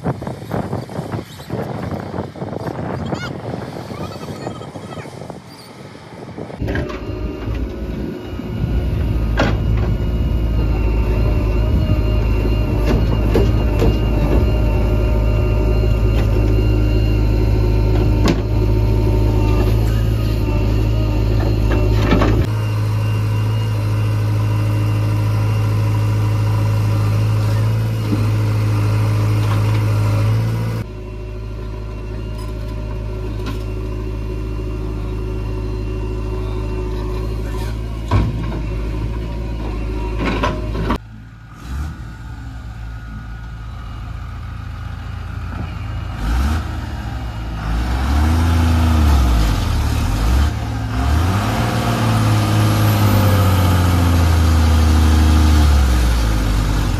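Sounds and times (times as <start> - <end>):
backhoe loader engine: 0.0 - 56.9
truck engine revving in mud: 40.8 - 43.1, 45.2 - 56.9.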